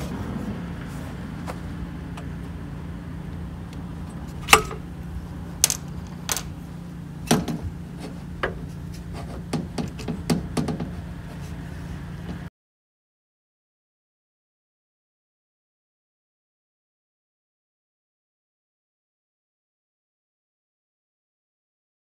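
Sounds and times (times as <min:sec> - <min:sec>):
low hum: 0:00.0 - 0:12.5
metal ladder knocking against van: 0:04.4 - 0:04.9, 0:07.2 - 0:08.7, 0:09.3 - 0:11.0.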